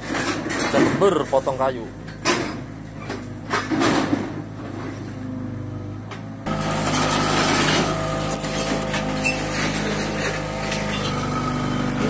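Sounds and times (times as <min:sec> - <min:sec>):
diesel engine running: 0:01.0 - 0:12.0
clatter and rubbing: 0:06.8 - 0:11.3.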